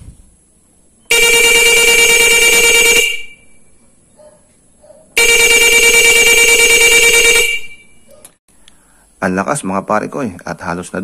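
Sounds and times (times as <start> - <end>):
motorcycle horn blasts: 1.1 - 3.6, 5.2 - 8.1.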